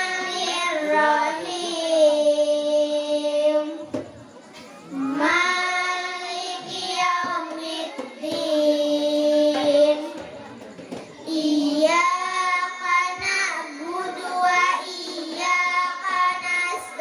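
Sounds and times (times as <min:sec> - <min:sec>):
girls chanting melodic recitation: 0:00.0 - 0:17.0.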